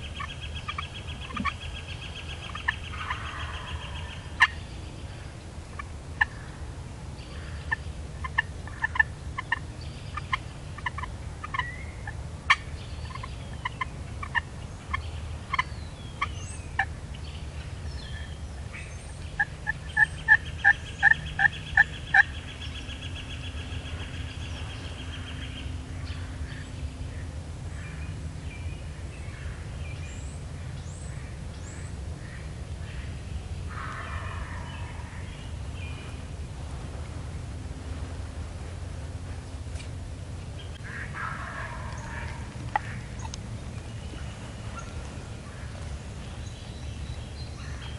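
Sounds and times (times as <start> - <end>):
turkeys gobbling: 0.0 - 4.6, 7.6 - 15.6, 16.2 - 16.9, 19.2 - 25.4, 33.7 - 35.4, 40.8 - 43.4.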